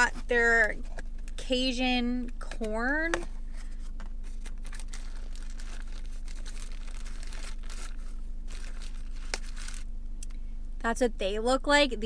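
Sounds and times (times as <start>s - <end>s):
paper wrapper crinkling: 2.6s - 9.9s.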